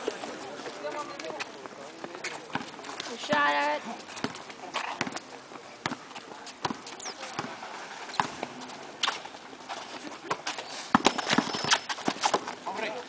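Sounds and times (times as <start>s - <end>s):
basketball bouncing on asphalt: 1.3s - 5.2s, 5.8s - 8.6s, 10.3s - 12.6s
short high squeaks: 6.8s - 7.3s, 9.0s - 12.4s.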